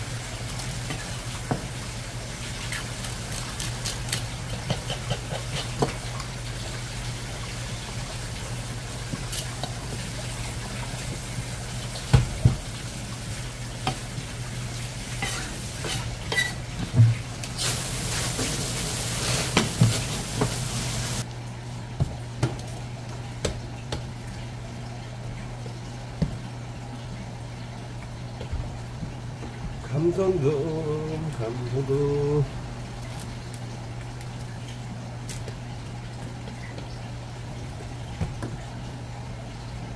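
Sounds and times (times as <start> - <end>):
hiss: 17.6 - 21.2.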